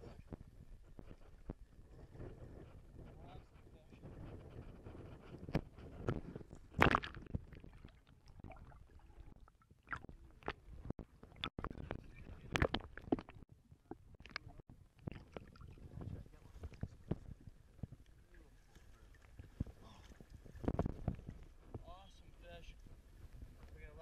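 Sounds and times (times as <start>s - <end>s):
water sloshing and gurgling: 0.0s - 22.0s
splashes and knocks on hull: 6.6s - 9.0s.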